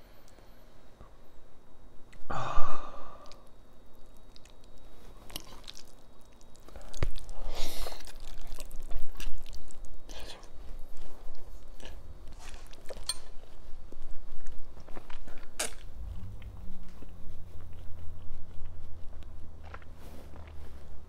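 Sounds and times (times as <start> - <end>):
man breathing out: 2.3 - 3.4
slurping and chewing noodles: 3.2 - 21.0.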